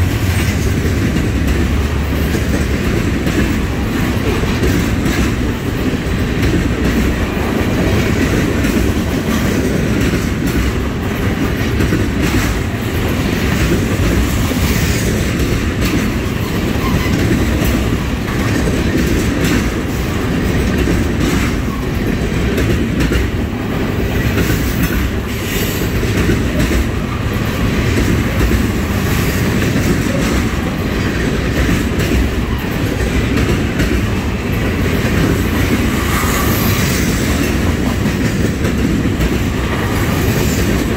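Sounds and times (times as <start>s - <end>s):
freight cars rumbling on rails: 0.0s - 40.9s
wheels clacking over track: 0.0s - 40.9s.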